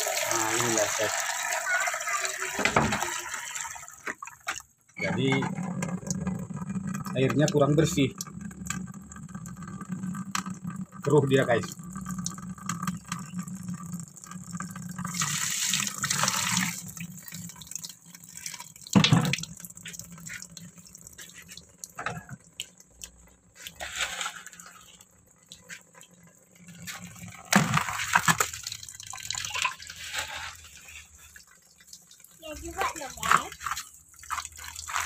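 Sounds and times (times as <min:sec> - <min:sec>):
water scooped and poured splashing: 0:15.0 - 0:22.3, 0:23.6 - 0:25.8, 0:26.6 - 0:35.0.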